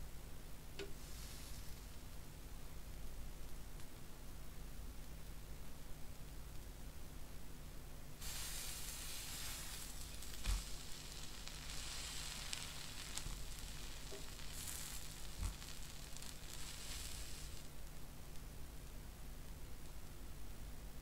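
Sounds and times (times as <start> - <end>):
pancake sizzling in a pan: 0.9 - 2.0, 8.2 - 17.8.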